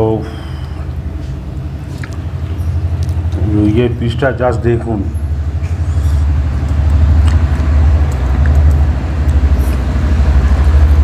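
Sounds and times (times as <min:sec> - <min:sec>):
pulsing low rumble: 0:04.9 - 0:11.0.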